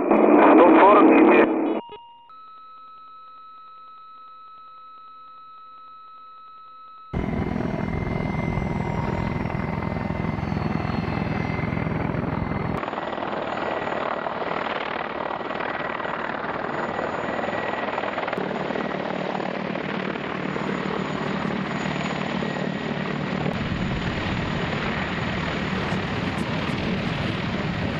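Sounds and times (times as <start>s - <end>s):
high engine whine: 7.0s - 27.9s
helicopter rotor noise: 7.2s - 27.9s.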